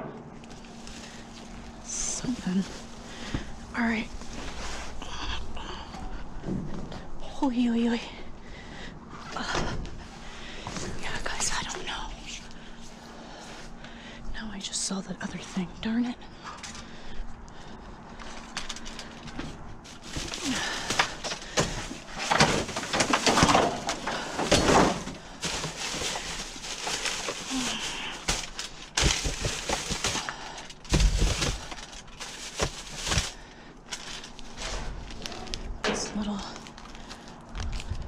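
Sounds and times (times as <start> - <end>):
plastic bags crinkling: 18.2 - 38.0.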